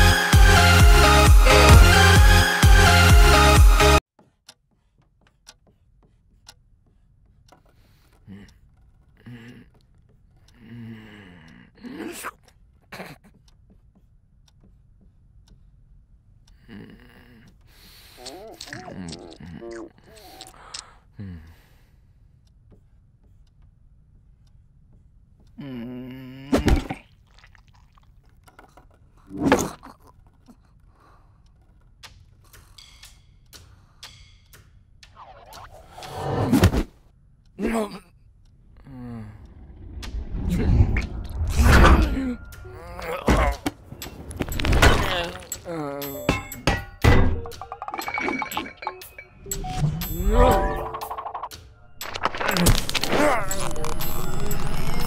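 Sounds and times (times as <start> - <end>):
marker ticking on whiteboard: 4.2 - 10.5, 22.5 - 25.5, 30.2 - 35.7
person groaning: 41.8 - 43.7, 52.5 - 54.1.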